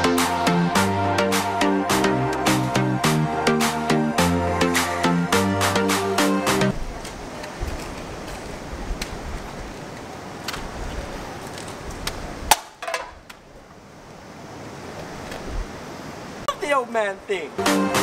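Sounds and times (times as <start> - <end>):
low rumbling wind noise: 6.7 - 12.5.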